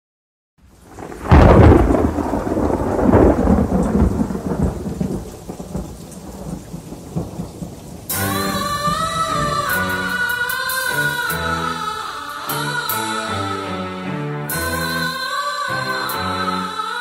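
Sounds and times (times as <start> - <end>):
steady rain: 0.6 - 17.0
thunder rumbling: 0.8 - 13.0
music: 8.1 - 17.0.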